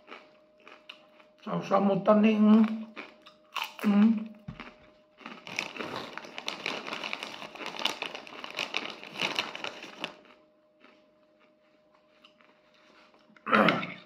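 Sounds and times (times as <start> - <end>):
plastic bag crinkling: 4.6 - 11.0.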